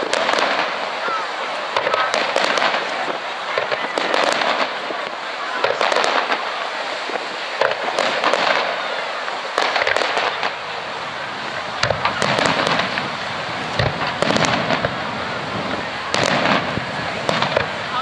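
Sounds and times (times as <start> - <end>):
fireworks crackling hiss: 0.0 - 18.0
fireworks shells bursting: 5.6 - 18.0.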